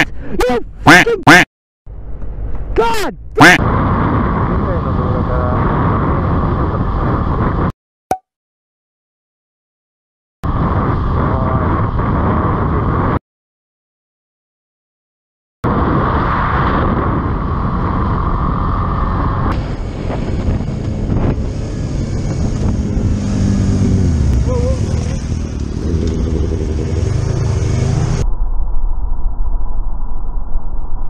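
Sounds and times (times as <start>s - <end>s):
wind noise on helmet: 3.4s - 7.7s, 10.4s - 13.2s, 15.6s - 27.1s
motorcycle engine running: 18.0s - 28.2s.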